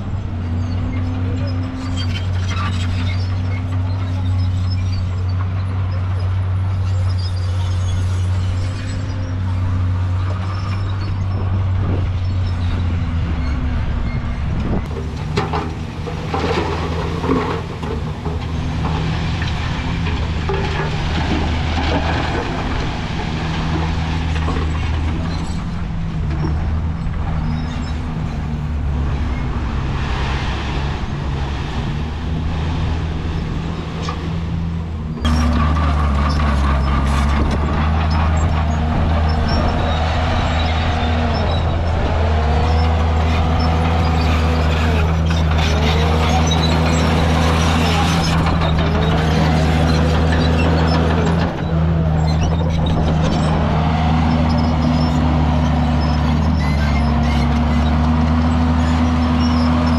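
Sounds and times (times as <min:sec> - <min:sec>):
diesel earthmoving machinery: 0:00.0 - 0:59.9.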